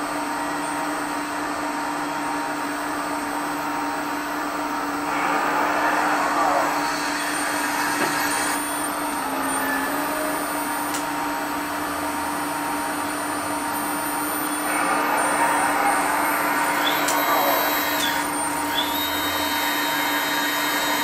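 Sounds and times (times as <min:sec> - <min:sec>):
hydraulic pump whining: 0:04.8 - 0:21.0.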